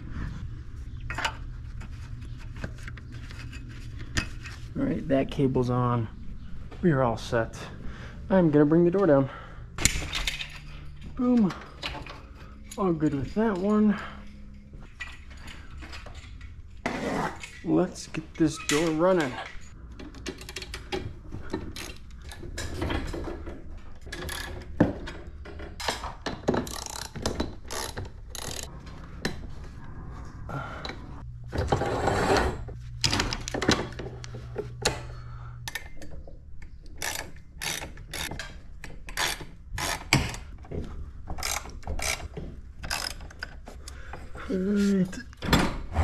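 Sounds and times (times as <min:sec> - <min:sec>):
metallic clicks and clanks of tools: 0:09.8 - 0:16.6, 0:17.4 - 0:29.4, 0:33.0 - 0:44.3.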